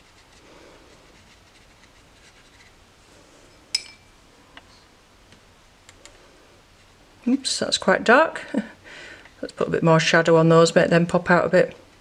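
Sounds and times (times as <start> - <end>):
brush rubbing on paper: 0.0 - 2.8
brush clinking on palette: 3.7 - 4.1.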